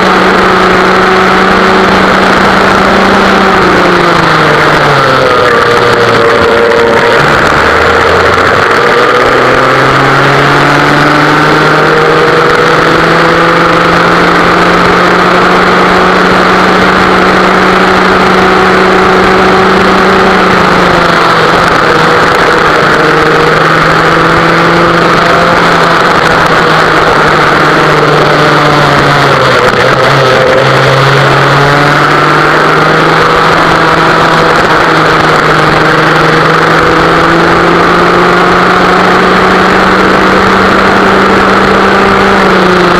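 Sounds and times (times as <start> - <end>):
kart engine running hard: 0.0 - 42.9.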